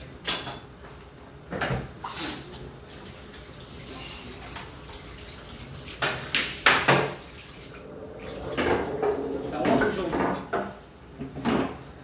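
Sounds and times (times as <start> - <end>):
pool balls clacking: 6.0 - 11.8
cue striking ball: 7.8 - 10.7.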